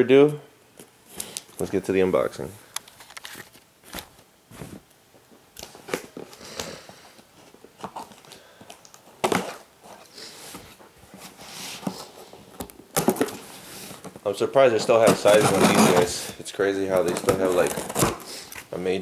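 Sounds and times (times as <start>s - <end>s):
cardboard box scraping and rustling: 14.8s - 16.4s.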